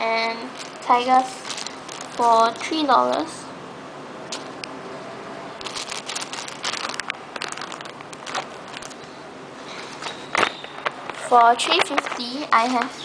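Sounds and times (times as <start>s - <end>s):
plastic bags crinkling: 0.3s - 2.8s, 4.3s - 4.7s, 5.6s - 9.2s.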